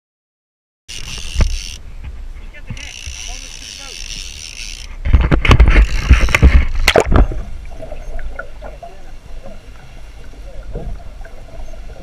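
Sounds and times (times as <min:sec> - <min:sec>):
water splashing and rushing: 0:01.0 - 0:12.0
muffled underwater wash: 0:04.9 - 0:12.0.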